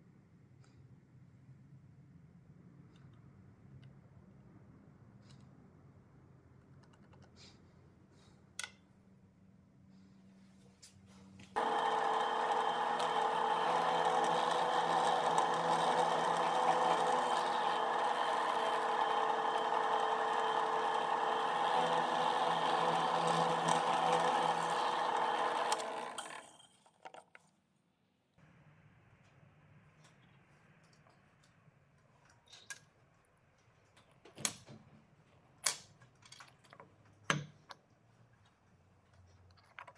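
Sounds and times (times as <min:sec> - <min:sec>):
drill press motor running: 0:11.6 - 0:27.0.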